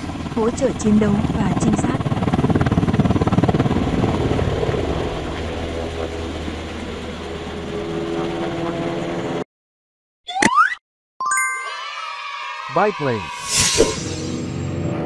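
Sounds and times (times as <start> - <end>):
helicopter engine hum: 0.0 - 9.4
helicopter rotor blades chopping: 0.0 - 9.4.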